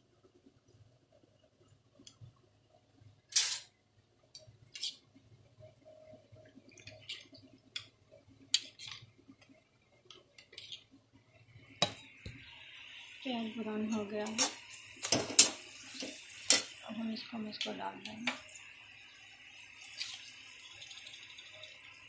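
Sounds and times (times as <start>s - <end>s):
metal spoon scraping steel plate: 3.3s - 3.7s, 4.7s - 5.0s.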